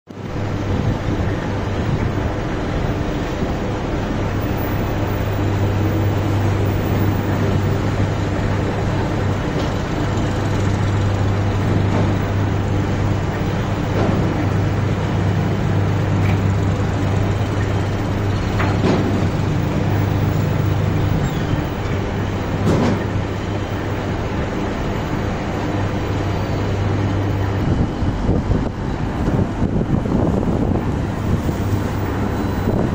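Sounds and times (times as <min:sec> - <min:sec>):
tractor engine drone: 0:00.1 - 0:32.9.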